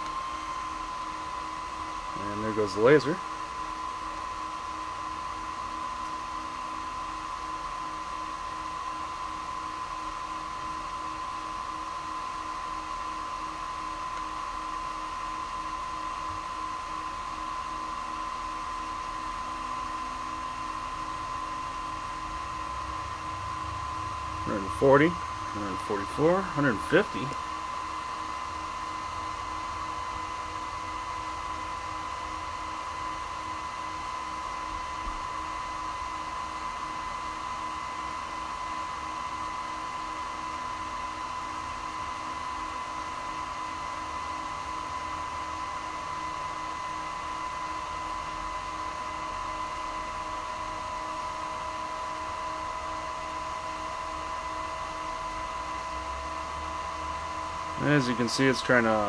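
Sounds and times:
electronic whine with fan hum: 0.0 - 59.0
faint rising tone: 22.3 - 25.8.

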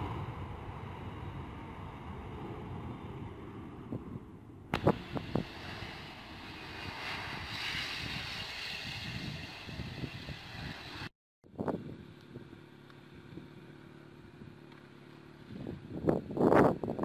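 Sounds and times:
distant jet engines rumbling: 0.0 - 11.1
wind on microphone: 0.0 - 12.5, 15.4 - 17.0.

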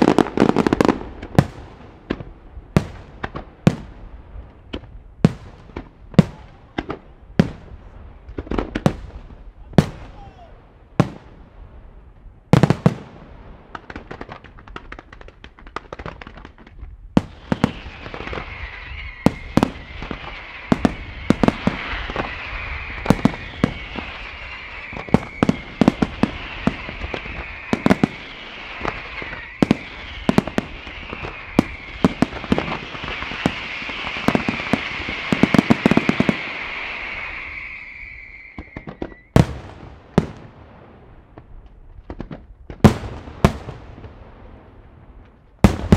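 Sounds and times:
fireworks hissing and whistling: 0.0 - 2.2, 17.2 - 40.6
fireworks bangs: 0.0 - 45.9.

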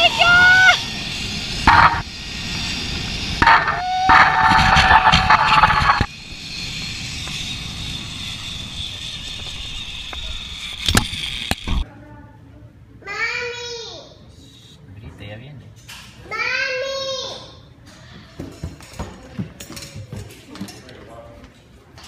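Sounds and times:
woman whooping: 0.0 - 0.8.

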